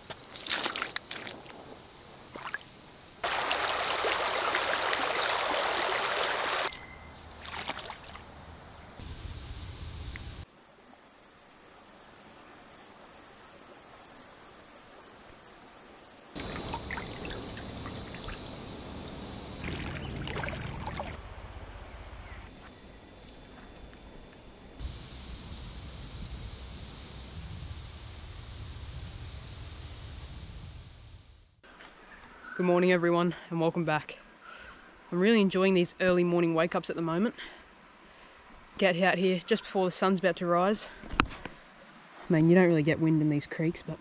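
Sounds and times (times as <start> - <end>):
boots stepping through water: 0.0 - 1.6, 2.3 - 6.7, 7.4 - 8.4, 16.4 - 18.5, 19.6 - 21.2
stream trickling: 0.2 - 1.6, 2.3 - 9.0, 10.6 - 22.2
loud splashing: 2.3 - 6.7, 16.4 - 21.4
high chirp: 6.7 - 7.2.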